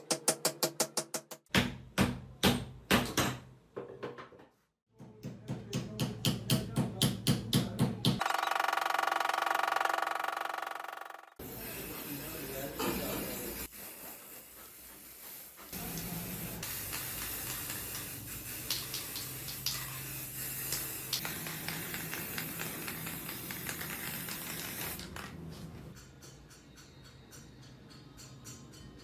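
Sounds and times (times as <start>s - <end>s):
aerosol spray can hissing: 11.4s - 25.0s.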